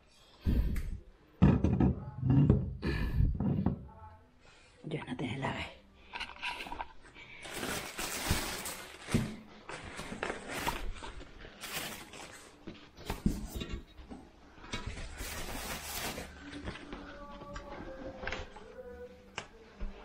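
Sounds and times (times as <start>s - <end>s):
plastic wrapping crinkling: 6.8s - 13.0s, 14.9s - 19.5s.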